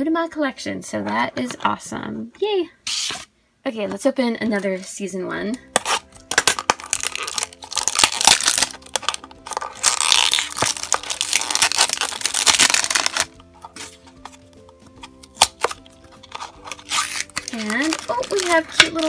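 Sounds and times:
plastic wrapper tearing and crinkling: 5.8s - 19.0s.

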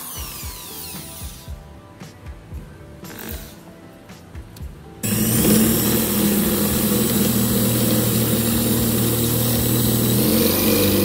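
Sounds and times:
small motor humming: 5.0s - 11.0s.

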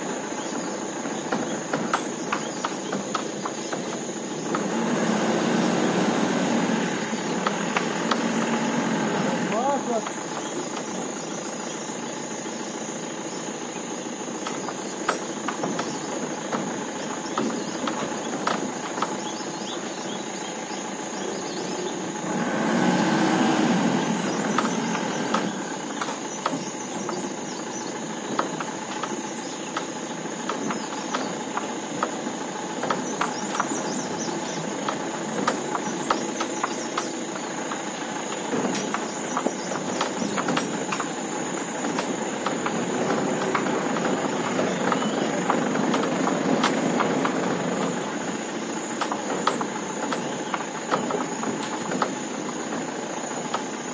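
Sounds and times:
diesel engine running: 0.0s - 53.9s
bodywork knocking and rattling: 0.6s - 4.7s, 14.4s - 20.1s, 24.2s - 53.9s.

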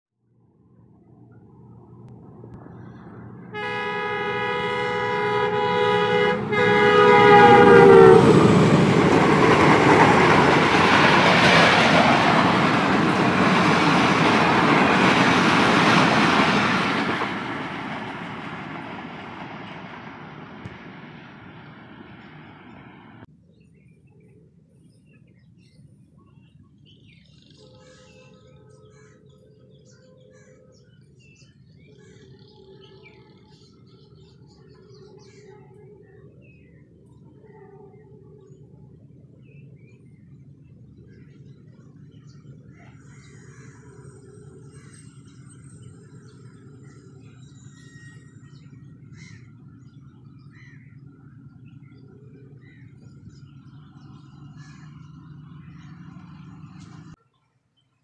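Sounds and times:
train rushing past: 0.8s - 23.3s, 40.7s - 57.2s
birds chirping: 2.6s - 57.4s
faint steady drone: 19.2s - 57.1s.

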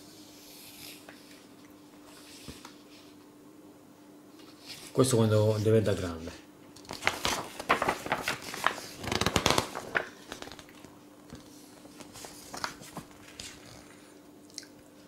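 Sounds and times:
faint steady hum: 0.0s - 15.0s
magazine pages rustling: 6.8s - 13.9s.

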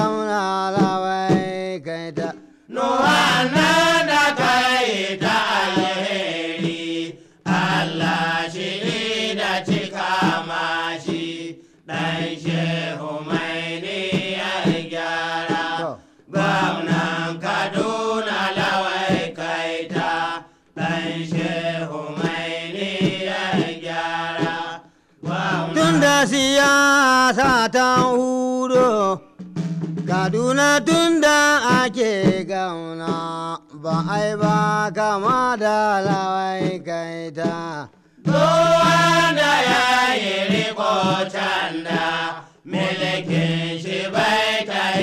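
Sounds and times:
person chanting melismatic phrases: 0.0s - 6.6s, 25.5s - 29.2s.

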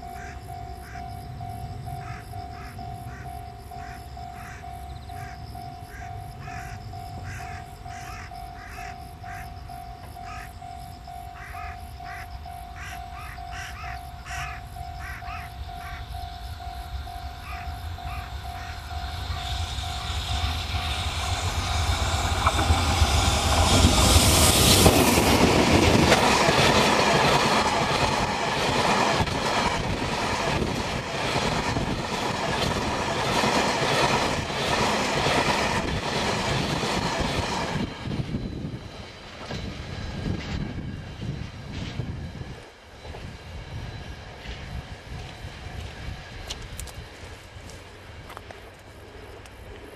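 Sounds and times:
electric locomotive passing: 0.0s - 49.9s
train wheels clattering over rail joints: 18.9s - 38.3s.

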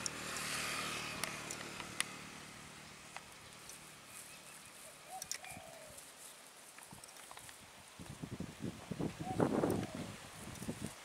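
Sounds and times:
motor vehicle passing: 0.0s - 5.2s
sharp clicks: 1.2s - 2.2s, 5.2s - 5.6s.

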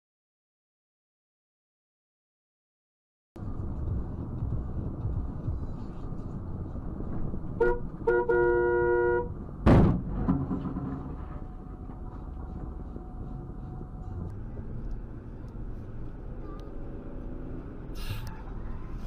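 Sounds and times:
car road noise in traffic: 3.4s - 19.0s
car horn honking: 7.6s - 9.3s
loud sudden thump: 9.6s - 11.2s.

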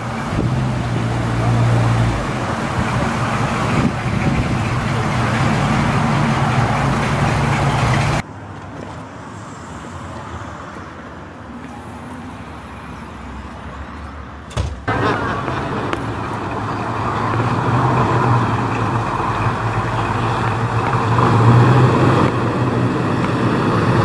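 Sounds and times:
pickup truck engine driving off: 0.0s - 8.2s, 14.9s - 24.0s
quiet steady engine: 0.0s - 8.2s, 14.8s - 24.0s.

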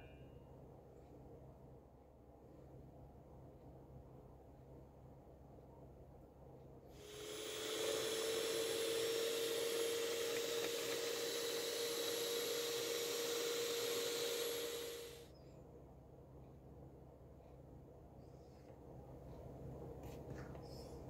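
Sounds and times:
electric hand mixer whirring: 7.0s - 15.3s.

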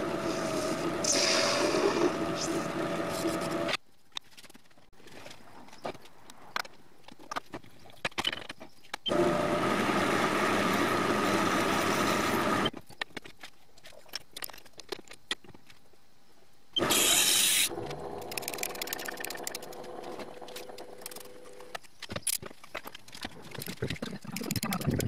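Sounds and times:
metal lathe running: 0.0s - 3.7s, 9.1s - 12.7s
short loud hissing burst: 0.3s - 2.0s.

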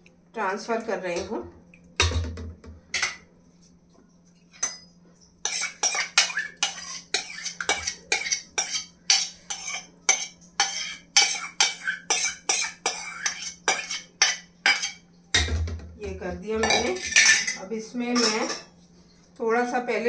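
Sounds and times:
spoon clinking on steel: 4.6s - 4.9s, 16.6s - 17.6s, 18.2s - 18.7s
spoon scraping steel bowl: 4.6s - 15.0s, 16.6s - 18.7s.

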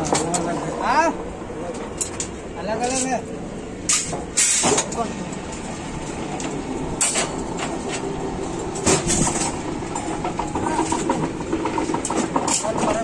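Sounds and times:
bending machine rattling: 3.9s - 13.0s
metal bars clanking: 6.0s - 13.0s.

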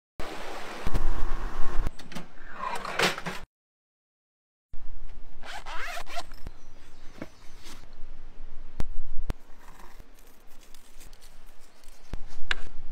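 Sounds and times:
zipper pulled open: 5.4s - 6.5s.

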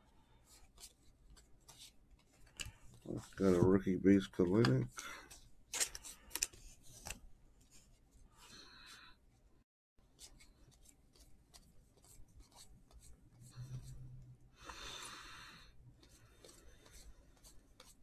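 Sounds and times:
trading cards rustling: 0.5s - 7.2s.

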